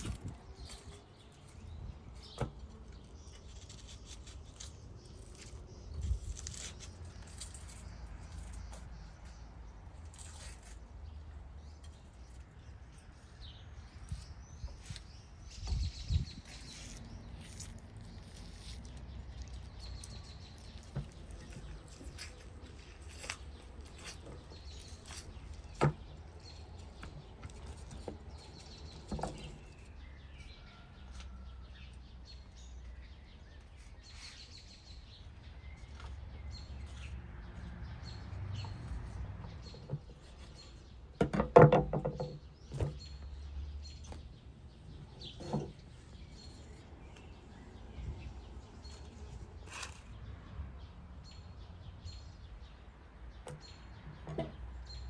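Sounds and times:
small birds chirping: 0.0 - 55.0
knocks on wooden cutting board: 41.2 - 42.9.

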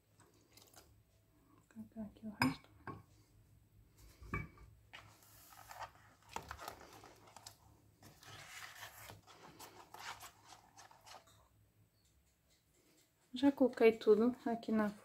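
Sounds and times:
spatula scraping plastic bowl: 8.0 - 11.4.

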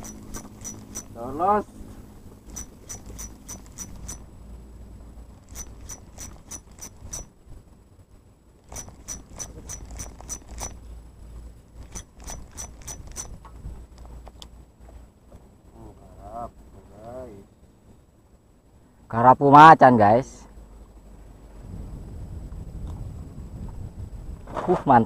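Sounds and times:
fishing reel clicking: 0.0 - 1.2, 2.5 - 4.2, 5.4 - 7.3, 8.7 - 10.8, 11.8 - 13.4
steady low rumble: 0.0 - 19.2, 20.4 - 24.6.

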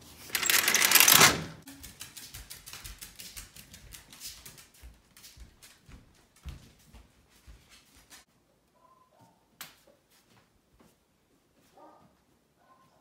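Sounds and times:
door opening with rattling scrape: 0.2 - 1.7.

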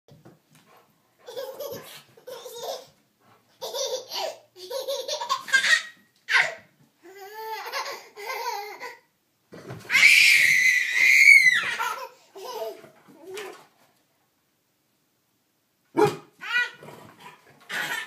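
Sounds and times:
toddler belly laughing: 1.2 - 3.0, 3.6 - 9.1, 11.6 - 13.0, 17.7 - 18.0
toddler squealing: 9.9 - 12.0.

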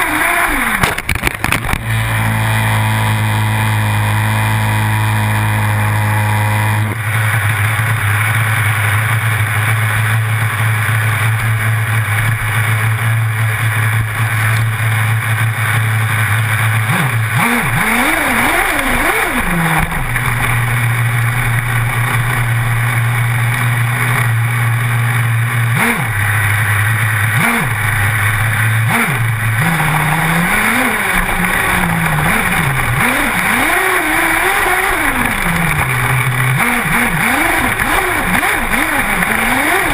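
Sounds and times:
small two-stroke engine revving: 0.0 - 39.9.

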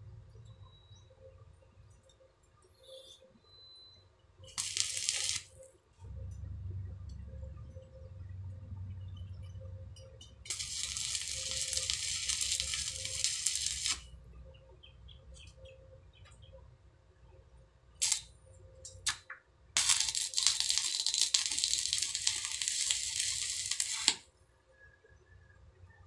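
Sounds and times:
arc welding crackling: 4.5 - 5.7, 10.5 - 14.1, 18.0 - 24.3.

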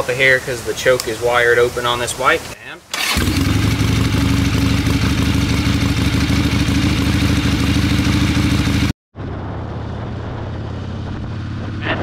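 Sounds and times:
motorcycle being ridden: 3.0 - 12.0
motorcycle engine idling: 3.2 - 8.9.

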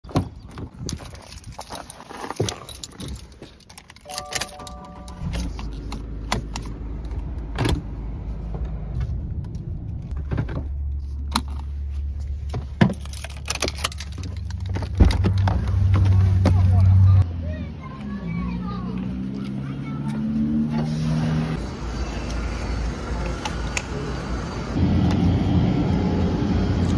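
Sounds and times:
keys jangling: 0.9 - 5.9, 12.9 - 14.8
car engine starting and idling: 4.0 - 17.2
car electronic chime: 4.1 - 5.6.

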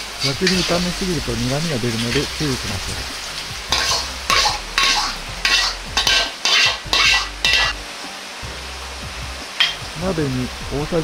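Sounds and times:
metal ladle scraping a wok: 0.0 - 1.1, 2.0 - 7.8, 9.6 - 9.8.

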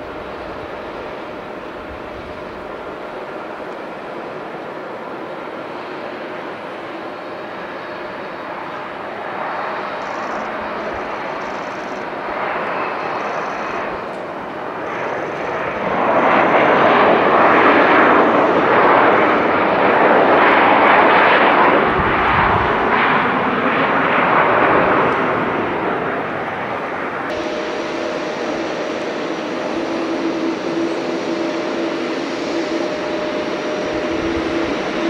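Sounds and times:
jet engines roaring: 0.0 - 35.0.

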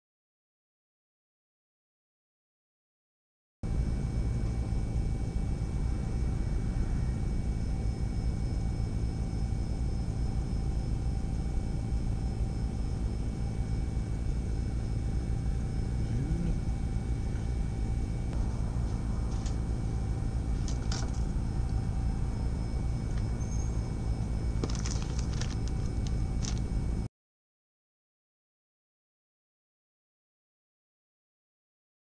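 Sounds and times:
electronic equipment hum and hiss: 3.6 - 27.1
faint high tones: 3.7 - 27.1.

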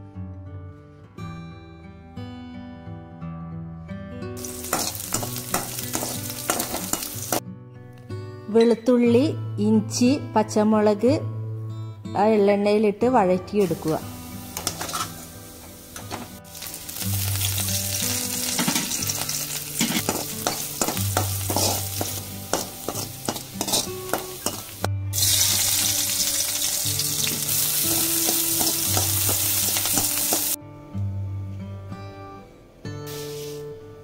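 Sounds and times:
food sizzling in a wok: 4.4 - 7.4, 13.6 - 30.6, 33.0 - 33.8
metal spoon scraping a pan: 4.5 - 7.4, 14.6 - 15.2, 19.8 - 24.7.

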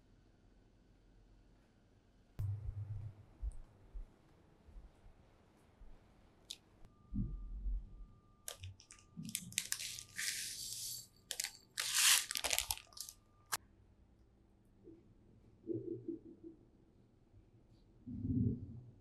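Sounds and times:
seeds rattling into ceramic dish: 8.5 - 13.1
plastic packet crinkling: 8.5 - 13.2.

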